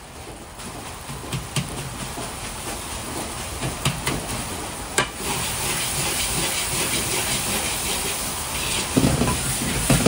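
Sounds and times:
rice sizzling in a wok: 5.0s - 10.0s.

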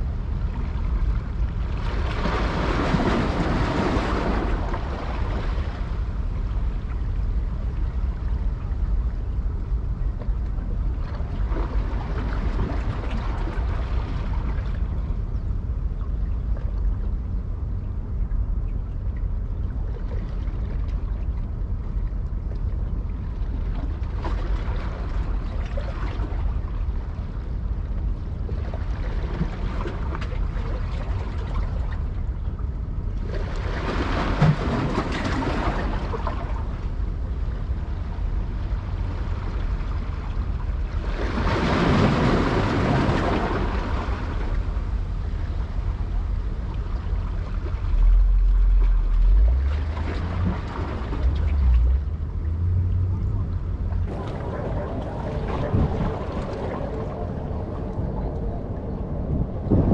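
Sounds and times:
wind rumble on microphone: 0.0s - 59.9s
rushing noise: 54.0s - 59.9s.

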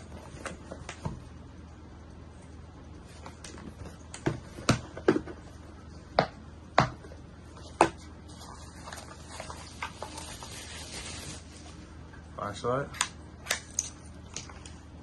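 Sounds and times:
bubble wrap rustling: 8.2s - 12.0s.

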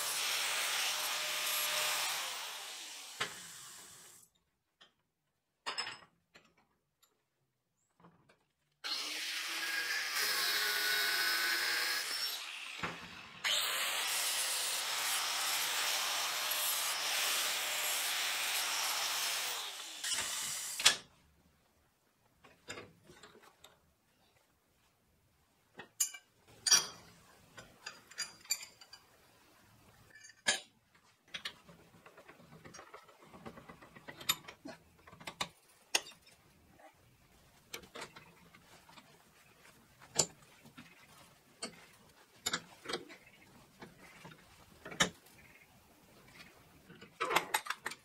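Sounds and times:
metal rebar clinking in vise: 26.0s - 29.1s.

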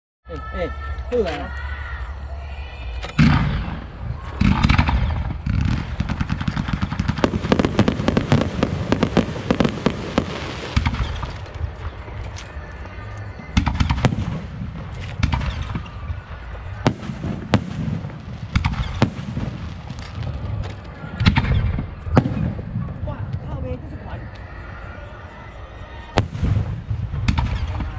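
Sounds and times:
fireworks crackling: 3.2s - 23.5s
fireworks bangs: 3.2s - 23.6s, 26.2s - 27.9s.

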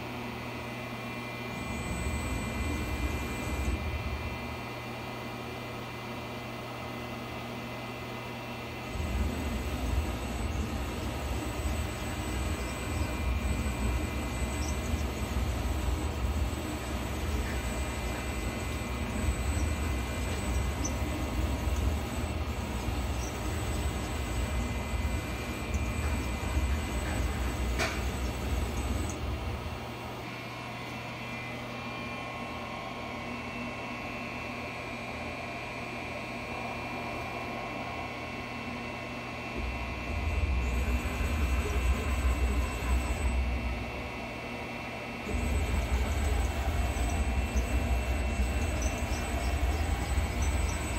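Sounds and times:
thin high whine: 0.8s - 5.4s, 7.1s - 50.9s
mill axis drive rumbling: 8.8s - 30.2s, 39.6s - 44.3s, 45.3s - 50.9s.

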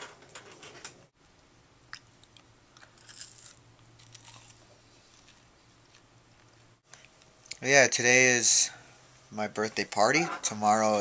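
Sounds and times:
person chewing crunchy fries: 2.0s - 6.0s.

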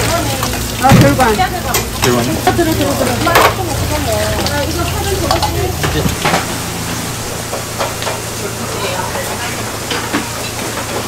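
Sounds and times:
voices chattering: 0.0s - 9.9s
low hum: 3.6s - 8.7s
metal bowls clinking and scraping: 5.2s - 6.5s.

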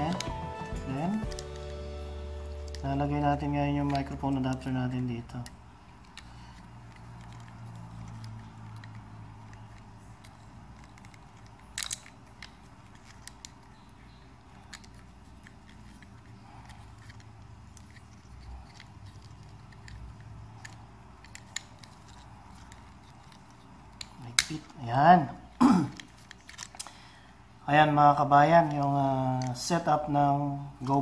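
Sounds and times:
low steady hum: 0.0s - 31.0s
plastic adapter handling: 2.4s - 27.3s, 28.4s - 29.9s
sharp plastic clicks: 3.7s - 24.8s.

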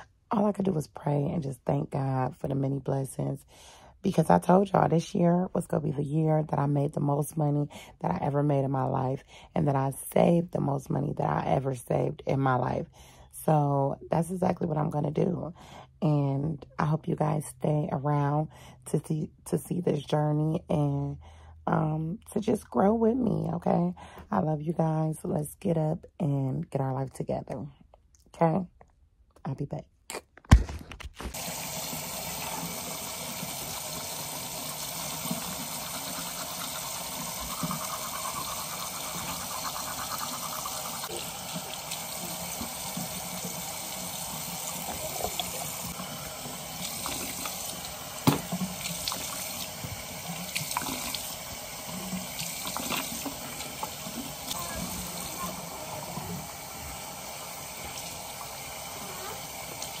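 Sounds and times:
tap water running into sink: 31.3s - 60.0s.

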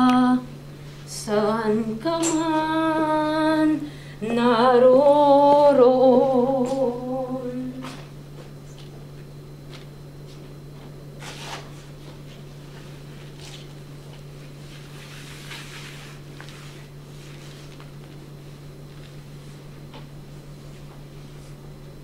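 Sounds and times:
steady low hum: 0.0s - 22.0s
body moving on tiled floor: 7.8s - 21.7s.

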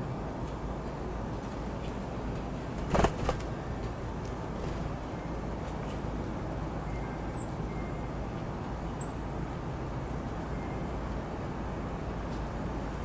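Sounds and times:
songbirds chipping: 4.9s - 9.3s.

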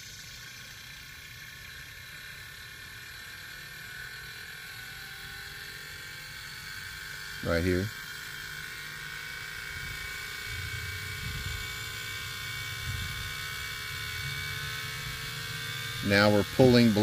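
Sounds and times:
vacuum pump running: 0.0s - 17.0s.

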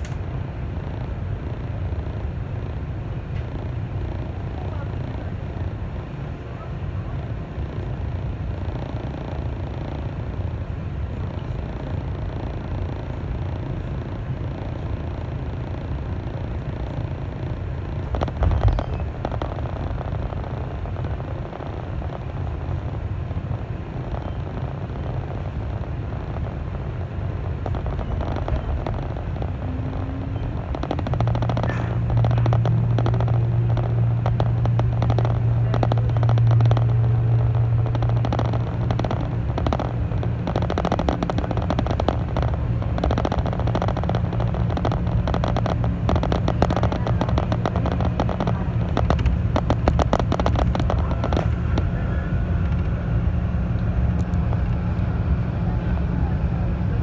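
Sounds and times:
train motor hum: 0.0s - 57.0s
wheel and track rumble: 0.0s - 57.0s
rapid clatter of clicks: 11.3s - 53.0s.

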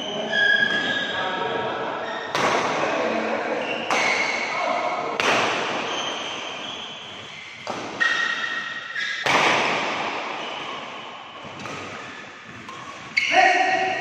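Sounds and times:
racket hitting shuttlecock: 2.3s - 2.8s, 3.8s - 4.5s, 5.2s - 13.3s.

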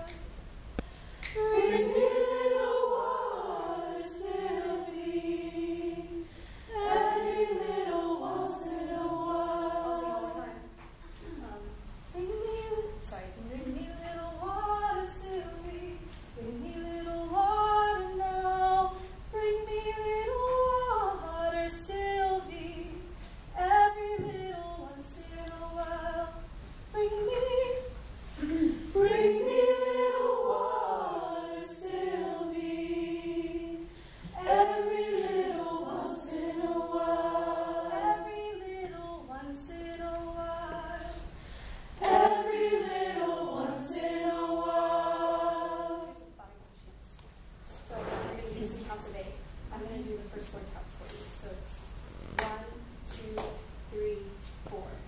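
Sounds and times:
choir singing a cappella: 1.2s - 10.8s, 13.5s - 46.6s.

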